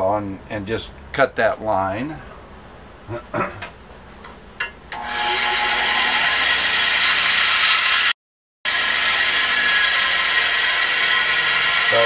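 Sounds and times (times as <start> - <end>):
bandsaw cutting wood: 5.0 - 12.0.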